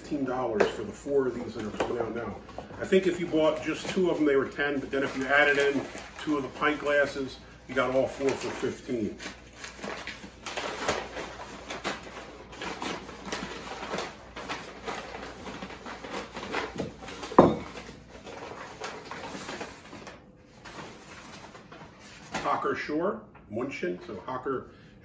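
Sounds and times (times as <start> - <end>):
paper rustling and crinkling: 0.0 - 22.8.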